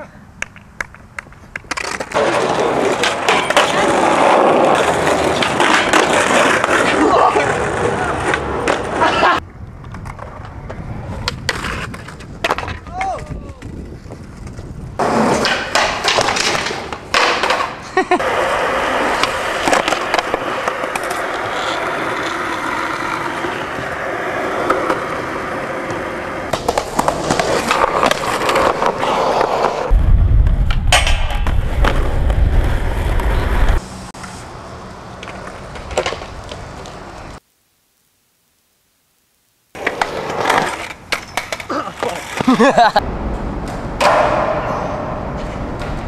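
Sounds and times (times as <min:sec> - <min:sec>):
skateboard wheels rolling on pavement: 0:00.3 - 0:37.4, 0:39.7 - 0:46.0
skateboard clacking on ground: 0:00.4 - 0:29.9, 0:35.1 - 0:37.2, 0:39.8 - 0:46.0
deep low rumble: 0:29.9 - 0:33.8.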